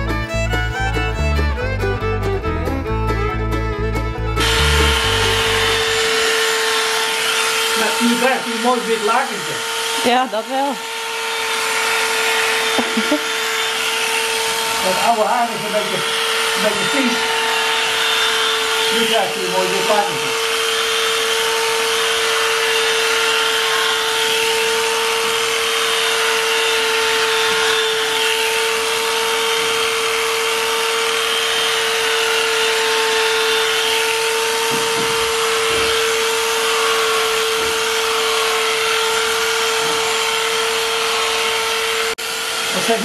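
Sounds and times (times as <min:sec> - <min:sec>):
electric clippers humming: 0:00.0 - 0:43.0.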